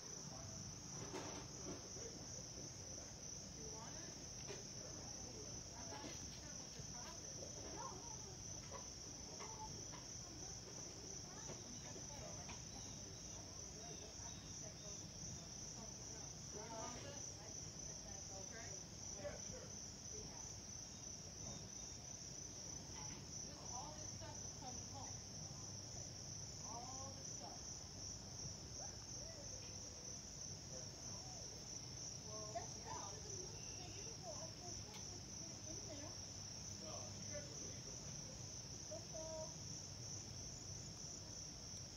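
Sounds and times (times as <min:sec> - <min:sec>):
pulsing insect chorus: 0:00.1 - 0:41.9.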